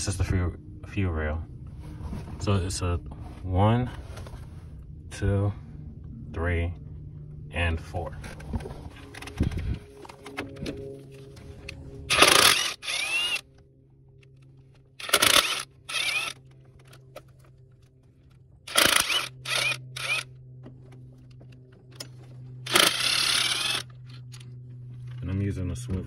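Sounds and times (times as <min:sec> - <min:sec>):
impact wrench whirring: 0:12.1 - 0:13.5, 0:15.0 - 0:16.6, 0:18.7 - 0:20.3, 0:22.6 - 0:23.9.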